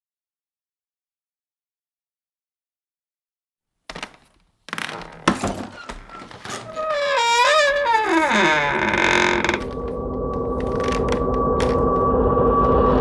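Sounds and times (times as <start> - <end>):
eerie wavering tone: 6.7 - 13.0.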